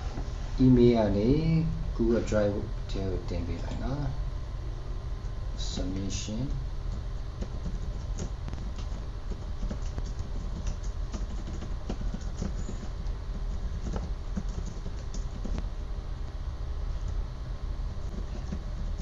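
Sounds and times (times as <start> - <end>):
steady low hum: 0.0 - 19.0
keyboard typing clicks: 7.4 - 13.0.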